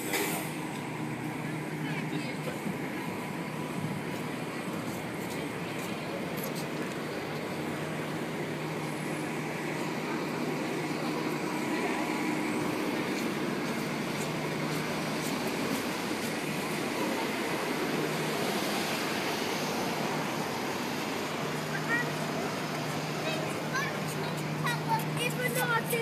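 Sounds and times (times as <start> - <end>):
city traffic rumble: 0.0 - 26.0.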